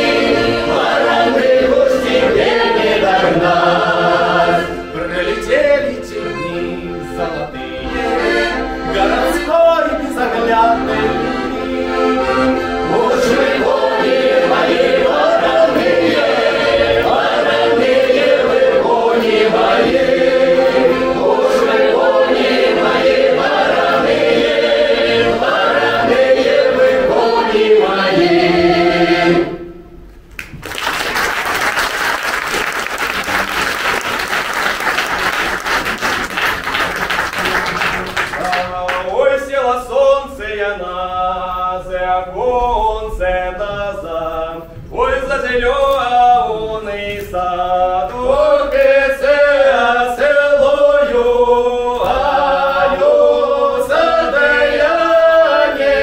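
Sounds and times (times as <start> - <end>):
accordion: 0.0 - 29.8, 32.3 - 42.3, 47.2 - 56.0
mixed choir singing: 0.0 - 29.8, 38.3 - 56.0
audience applauding: 30.3 - 39.1.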